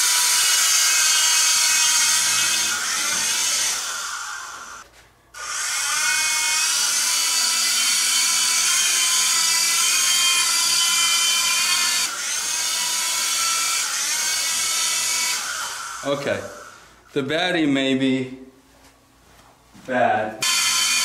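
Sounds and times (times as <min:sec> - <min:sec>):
model helicopter rotors whining: 0:20.4 - 0:21.0.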